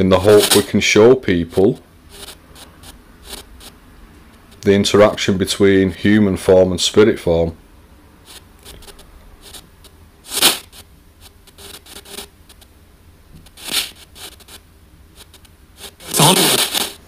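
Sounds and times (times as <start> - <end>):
bursts of hiss: 8.2 - 12.3, 15.2 - 17.0
radio static sweeping: 8.2 - 12.6, 15.2 - 17.0.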